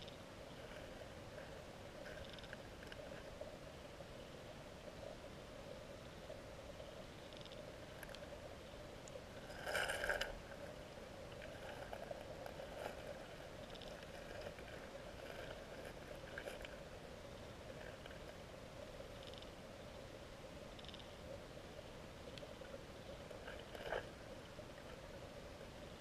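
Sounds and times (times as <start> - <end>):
underwater clicks and ticks: 0.0 - 3.8, 6.0 - 8.4, 9.0 - 16.9, 19.0 - 19.6, 20.7 - 21.4, 22.2 - 25.2
underwater stream hum: 0.0 - 26.0.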